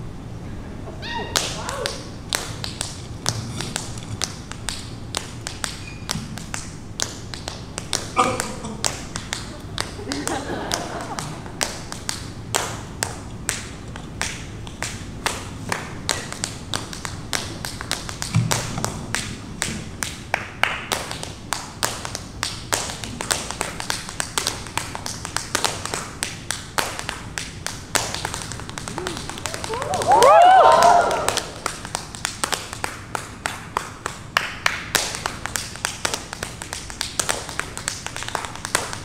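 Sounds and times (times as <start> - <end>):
tap shoes tapping on floor: 1.3 - 39.0
heavy tap shoe stomp: 18.0 - 19.1.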